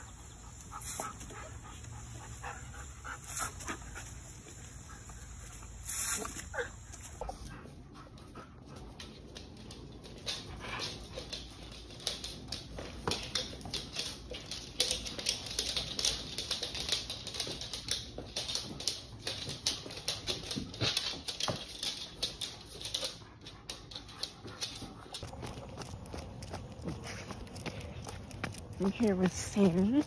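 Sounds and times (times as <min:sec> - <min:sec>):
dog claws clicking on hard floor: 0:08.2 - 0:30.0.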